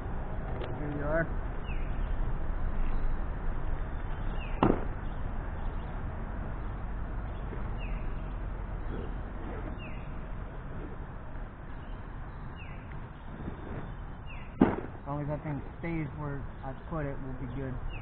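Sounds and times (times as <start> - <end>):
sharp knock: 4.6 - 4.9, 14.6 - 14.9.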